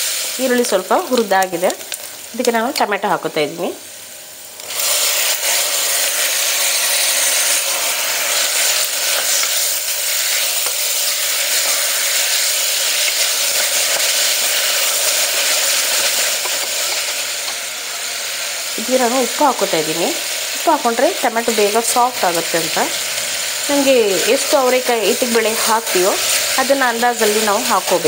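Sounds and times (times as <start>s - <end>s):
tomatoes sizzling in hot oil: 0.0s - 28.0s
spatula stirring in a pot: 4.8s - 17.6s.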